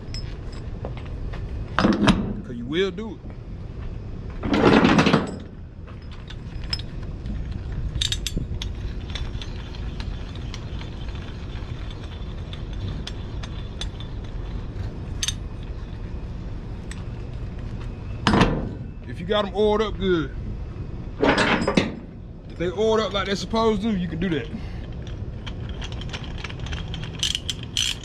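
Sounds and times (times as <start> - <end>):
ratchet clicking: 24.8 - 28.0.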